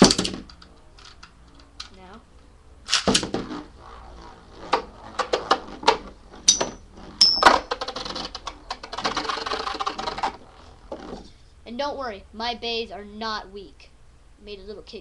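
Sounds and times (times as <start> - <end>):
spinning tops clacking: 2.9 - 10.6
spinning tops rattling clatter: 4.6 - 10.7.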